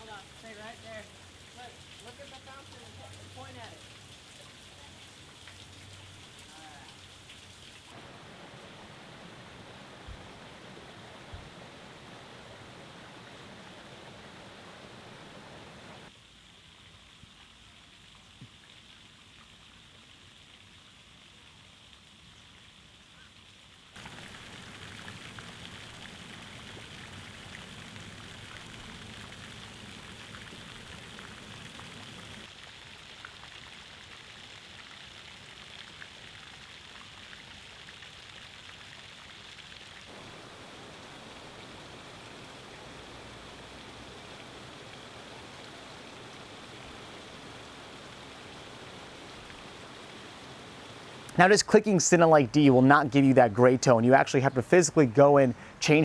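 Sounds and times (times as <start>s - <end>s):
falling water hiss: 0.0s - 56.0s.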